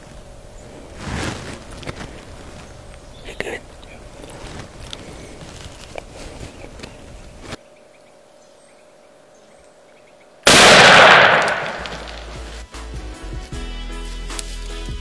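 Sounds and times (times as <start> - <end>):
loud shotgun blast: 10.4 - 12.4
music: 12.0 - 15.0.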